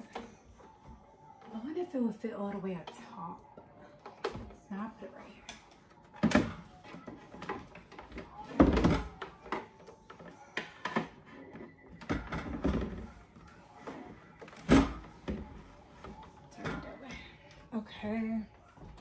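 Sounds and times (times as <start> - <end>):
kitchen items knocking in cabinets: 6.2 - 9.8, 10.6 - 13.3.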